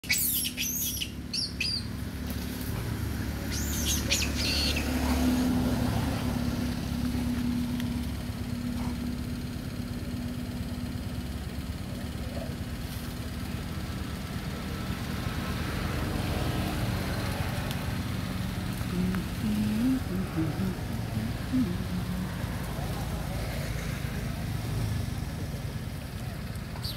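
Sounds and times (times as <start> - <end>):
high chirping bird calls: 0.0 - 1.9, 3.4 - 5.0
steady low rumble: 1.1 - 13.8.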